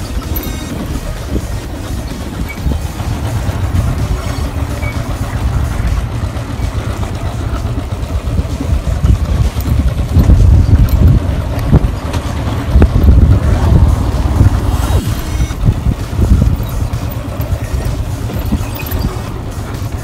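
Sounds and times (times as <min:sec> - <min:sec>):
motorcycle engine rumble: 0:00.0 - 0:20.0.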